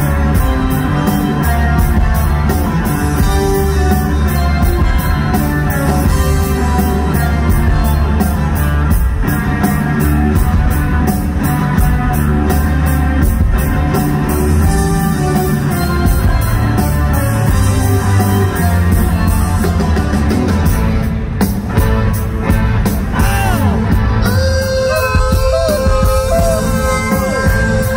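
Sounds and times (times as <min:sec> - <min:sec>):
live rock band playing: 0:00.0 - 0:27.9.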